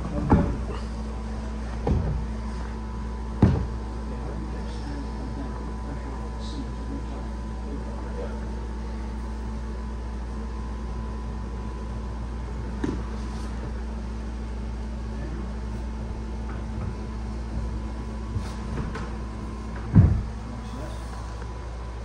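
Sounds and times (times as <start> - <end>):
mechanical hum: 0.0 - 22.0
short knock: 3.4 - 3.8.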